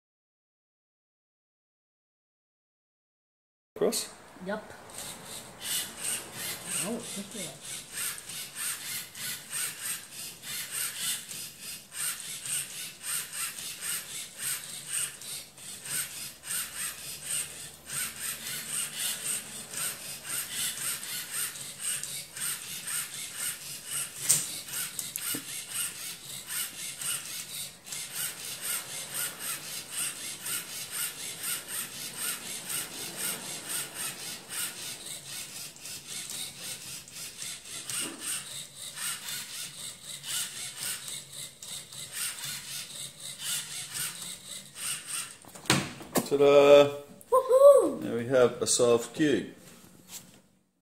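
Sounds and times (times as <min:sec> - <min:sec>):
plastic cube layers rotating: 0:04.9 - 0:45.4
short motor whirs: 0:04.9 - 0:45.5.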